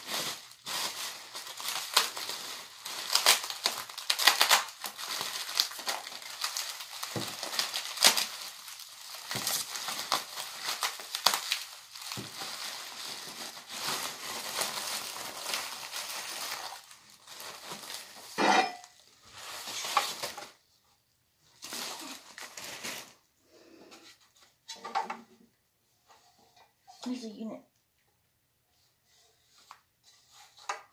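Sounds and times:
packaging rustling and crinkling: 0.0 - 20.6, 21.4 - 23.3.

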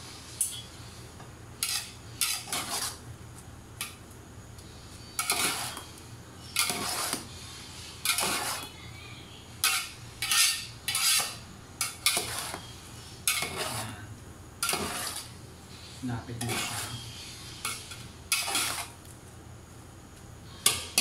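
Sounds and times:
metal utensils scraping a pot: 1.6 - 3.0, 5.2 - 5.9, 6.5 - 7.3, 8.0 - 8.8, 9.6 - 14.0, 14.6 - 15.4, 16.3 - 19.0.

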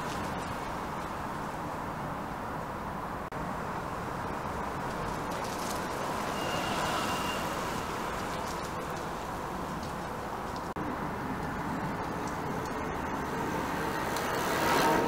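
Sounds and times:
road traffic hum: 0.0 - 15.0
electric bike high whine: 3.8 - 15.0.

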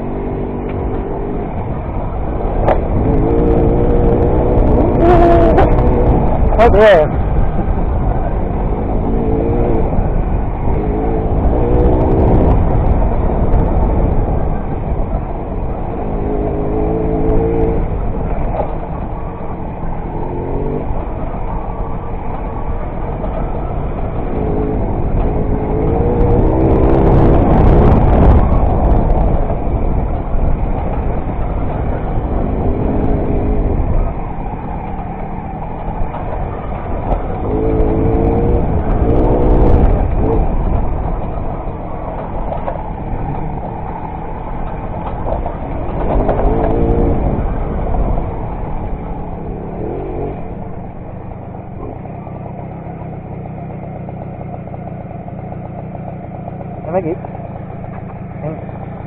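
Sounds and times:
moped two-stroke engine revving: 0.0 - 7.2, 8.4 - 13.2, 23.8 - 34.6, 35.6 - 59.0
wind rumble on microphone: 0.0 - 59.0.

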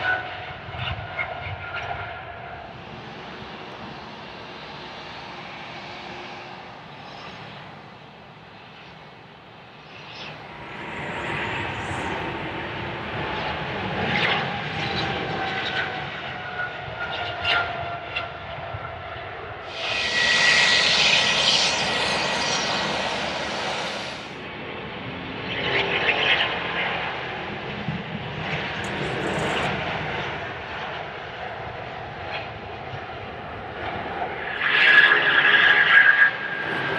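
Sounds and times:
jet engines rumbling and whining: 0.0 - 36.9
loud rushing hiss: 19.7 - 24.4.

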